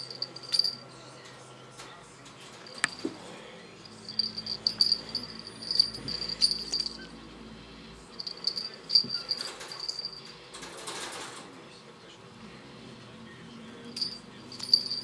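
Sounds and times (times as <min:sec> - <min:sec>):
cat toy jingling rattle: 0:00.0 - 0:00.8, 0:03.8 - 0:07.1, 0:08.2 - 0:10.3, 0:13.9 - 0:15.0.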